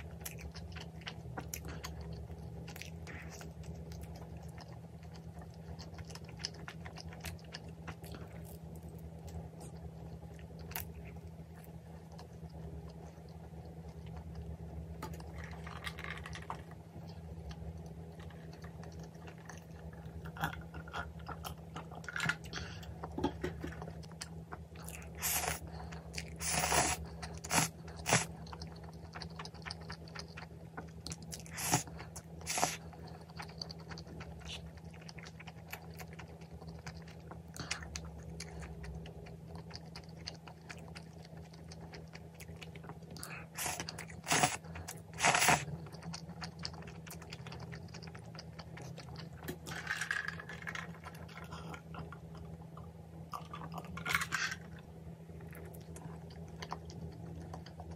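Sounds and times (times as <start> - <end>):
faint low hum: 0.0 - 57.9
person chewing and slurping noodles: 15.1 - 49.8.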